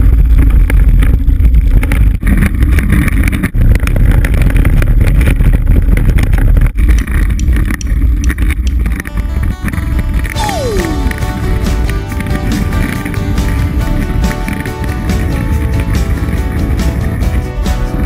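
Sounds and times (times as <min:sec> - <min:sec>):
scooter wheels rolling on wet tarmac: 0:11.3 - 0:18.0.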